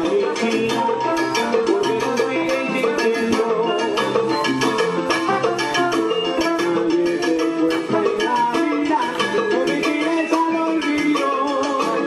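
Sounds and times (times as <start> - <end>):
salsa music: 0.0 - 12.0.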